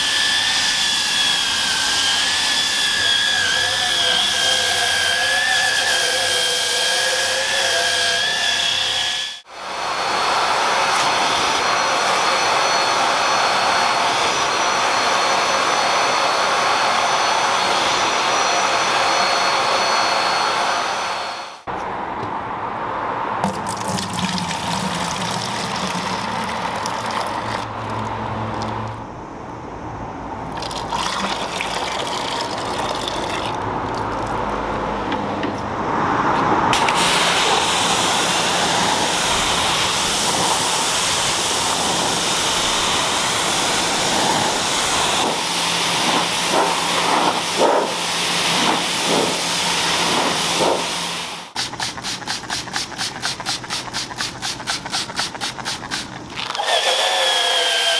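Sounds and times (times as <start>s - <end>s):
water pouring into plastic bucket: 23.4s - 28.7s, 30.5s - 34.4s
pressure washer spraying: 36.8s - 57.9s.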